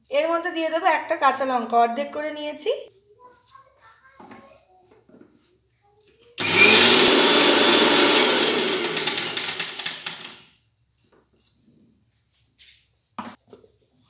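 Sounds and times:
mixer grinder motor running: 6.4 - 10.4.

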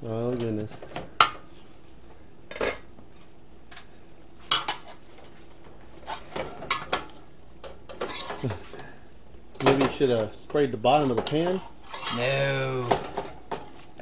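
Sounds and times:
utensils scraping metal pan: 8.0 - 8.4, 11.0 - 12.3.

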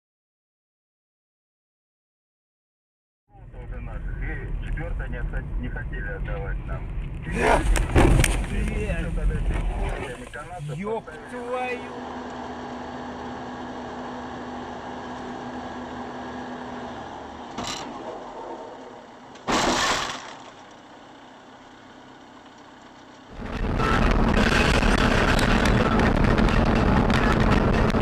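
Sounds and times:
vehicle road noise: 3.3 - 28.0
vehicle collision crash: 7.4 - 10.1, 17.5 - 20.9
rushing wind: 23.3 - 28.0.

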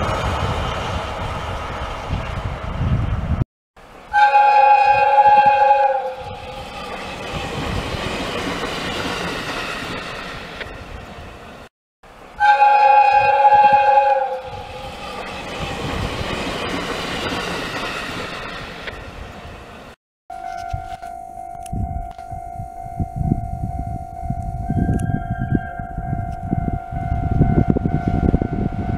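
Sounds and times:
train running: 0.0 - 28.9
train horn: 4.1 - 6.8, 12.4 - 15.0.

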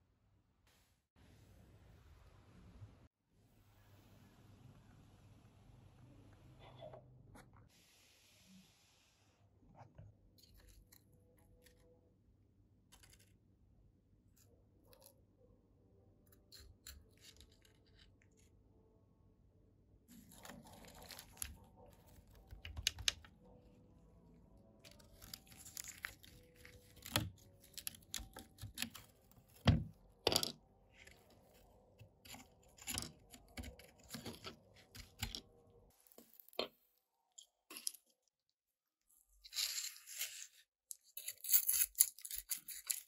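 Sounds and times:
tweezers clicking and scraping: 40.9 - 43.0.

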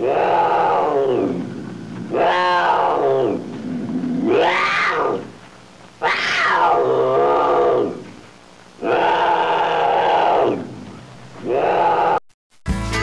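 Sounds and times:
monster roars: 0.0 - 1.5, 2.1 - 5.3.

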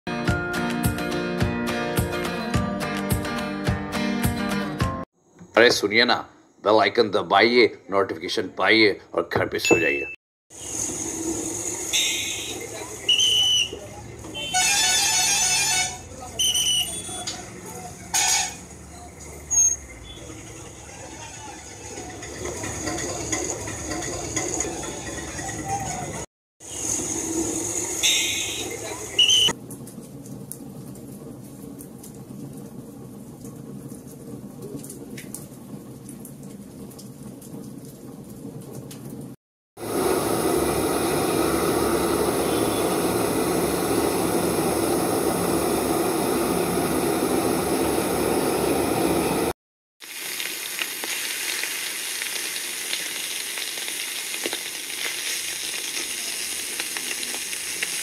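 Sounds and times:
short high beep: 9.6 - 10.2
horn blare: 11.9 - 12.6, 14.3 - 16.1, 42.3 - 43.2
murmur of market crowd: 12.6 - 26.2
wood fire crackling: 26.9 - 39.4, 43.0 - 58.0.

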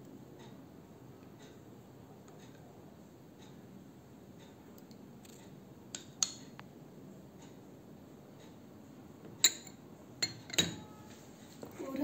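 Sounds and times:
spoon clinking on bowls: 9.4 - 11.1.

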